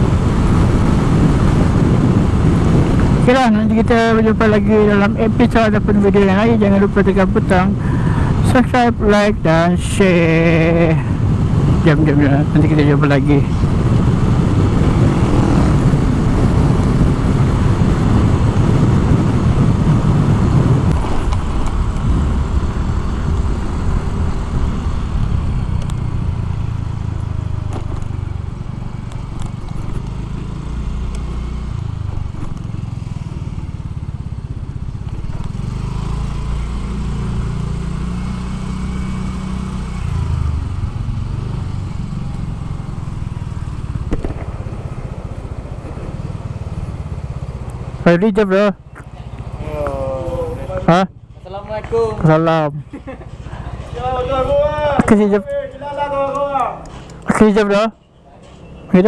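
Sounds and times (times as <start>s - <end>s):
wind noise on microphone: 0.0s - 5.4s, 10.1s - 30.6s
scooter engine running: 26.2s - 47.9s.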